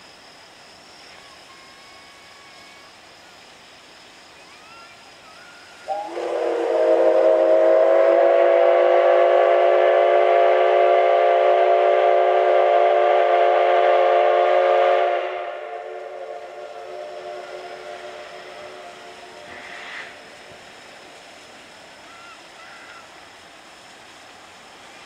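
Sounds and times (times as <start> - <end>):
steady steam hiss: 0.0 - 25.0
steam whistle blast: 5.5 - 20.4.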